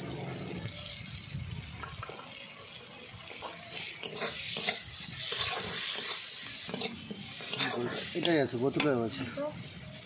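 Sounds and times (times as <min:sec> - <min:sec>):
oil sizzling: 0:00.0 - 0:10.0
spatula scraping iron pan: 0:04.0 - 0:08.9.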